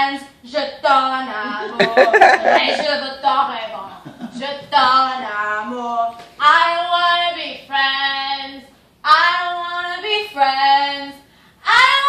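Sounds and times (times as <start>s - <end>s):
woman singing unaccompanied: 0.0s - 3.7s.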